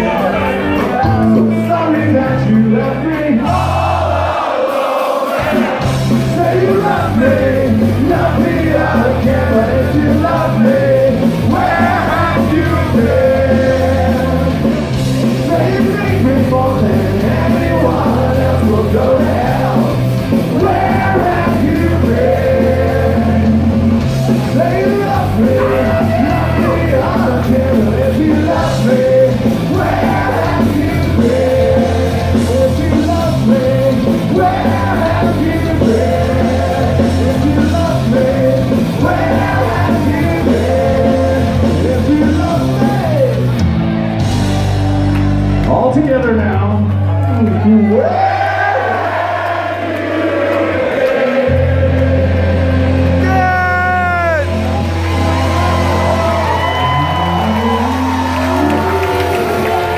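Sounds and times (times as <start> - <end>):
ska-punk band playing live: 0.0 - 46.8, 50.4 - 59.9
person singing: 5.5 - 14.7, 15.3 - 23.7, 24.3 - 43.5.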